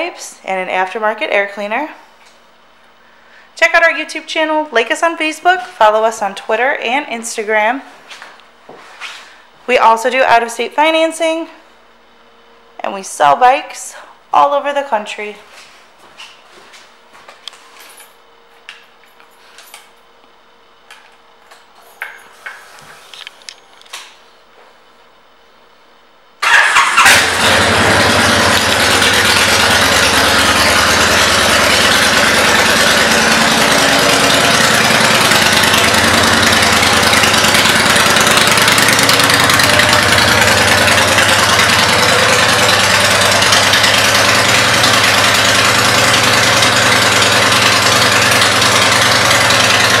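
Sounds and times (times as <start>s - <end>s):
motorcycle engine starting and idling: 26.4s - 50.0s.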